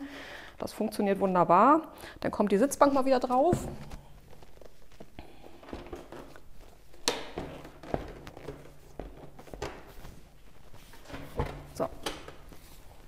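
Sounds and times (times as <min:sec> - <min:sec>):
motorcycle seat rustling and knocking: 0:03.4 - 0:13.0.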